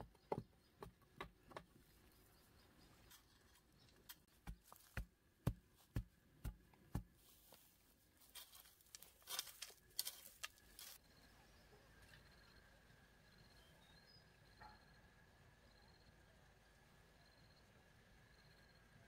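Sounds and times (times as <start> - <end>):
digging bar thumping earth: 4.1 - 7.2
scraping and rustling in soil: 7.0 - 11.0.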